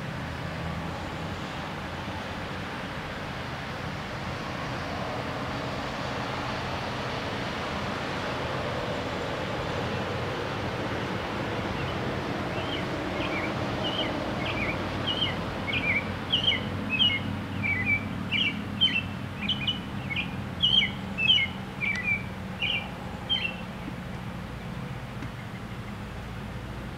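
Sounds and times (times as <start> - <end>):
robin singing: 11.8 - 23.8.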